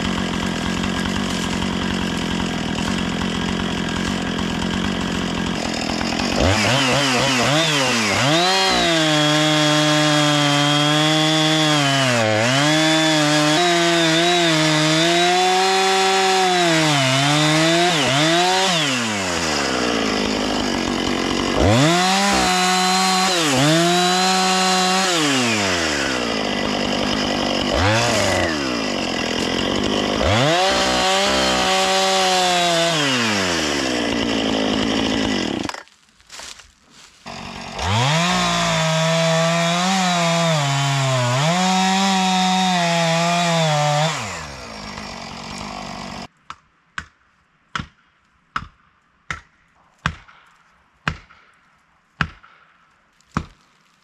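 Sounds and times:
chainsaw cutting wood: 0.0 - 46.3, 52.2 - 54.0
axe striking felling wedge: 48.6 - 51.6, 52.2 - 53.6.

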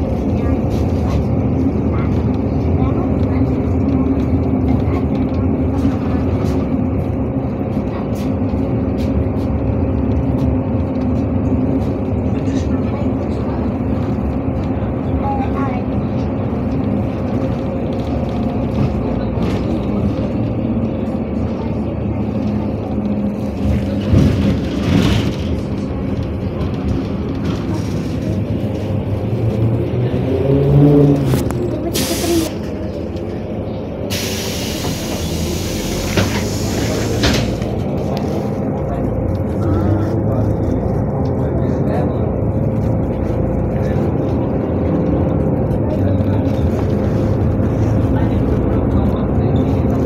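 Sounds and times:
bus engine drone and road noise: 0.0 - 50.0.

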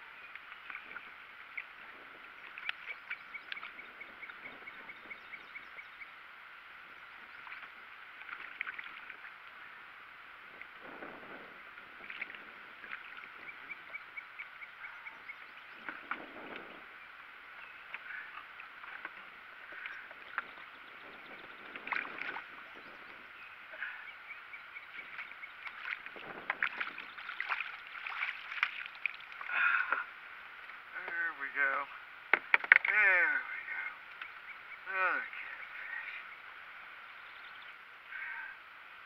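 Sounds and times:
water splashing around boat: 7.2 - 9.4, 10.5 - 15.0, 17.7 - 24.1, 24.8 - 30.8.

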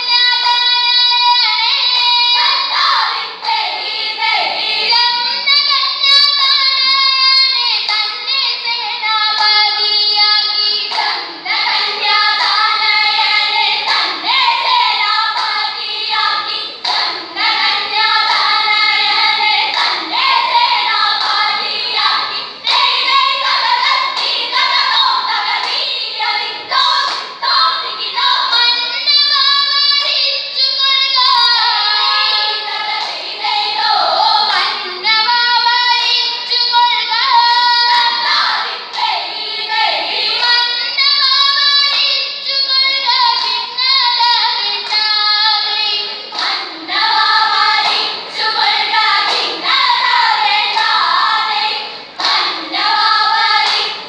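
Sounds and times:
girls singing in unison: 0.0 - 54.0
hand claps: 7.8 - 8.1, 9.4 - 9.7, 10.8 - 12.9, 13.7 - 26.0, 26.8 - 27.4, 32.9 - 33.4, 34.5 - 34.8, 37.4 - 39.2, 43.2 - 45.2, 46.3 - 51.4, 52.2 - 54.0.

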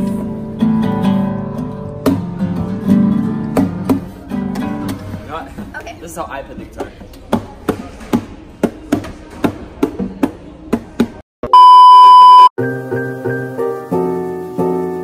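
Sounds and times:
electronic beep: 11.5 - 12.5
piano chords background music: 12.6 - 15.0.

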